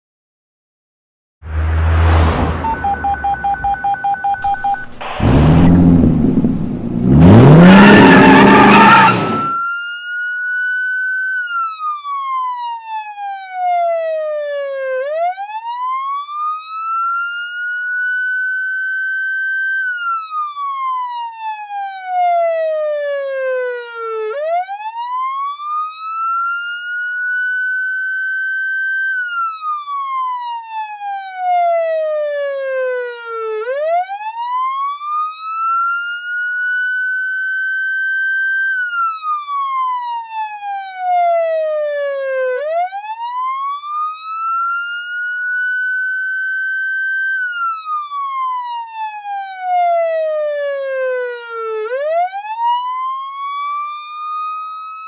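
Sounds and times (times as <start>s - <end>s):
police siren wailing: 1.5s - 55.0s.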